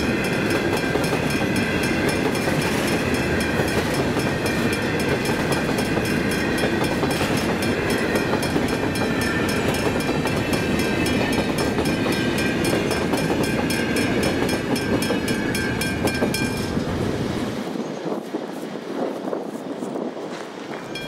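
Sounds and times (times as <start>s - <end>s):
crossing bell ringing: 0.0s - 16.8s
freight train rumble and wheel clatter: 0.0s - 21.0s.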